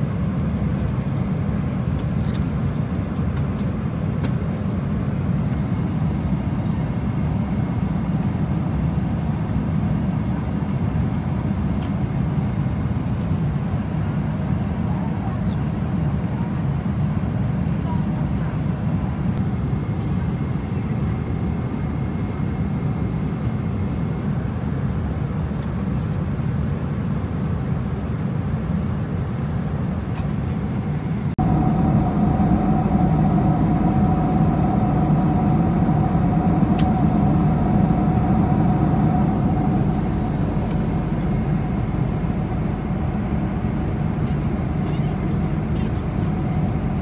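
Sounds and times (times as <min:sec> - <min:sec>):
airplane cabin engine rumble: 0:00.0 - 0:47.0
steady hum: 0:30.8 - 0:47.0.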